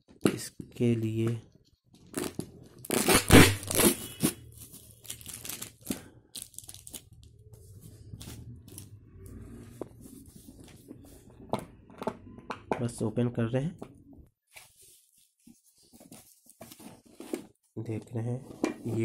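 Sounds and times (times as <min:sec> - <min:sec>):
tape ripping off cardboard box: 0:02.1 - 0:04.4.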